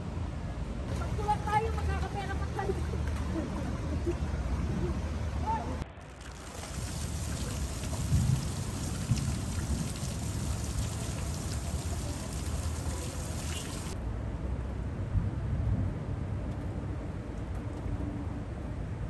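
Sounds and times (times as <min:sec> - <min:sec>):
heavy rain on a flooded road: 0:06.1 - 0:14.0.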